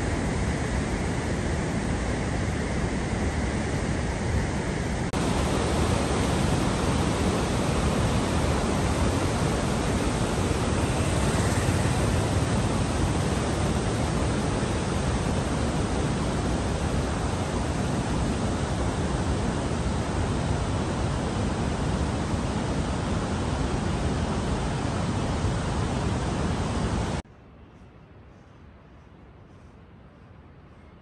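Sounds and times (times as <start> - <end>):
river rushing over boulders: 5.0 - 27.2.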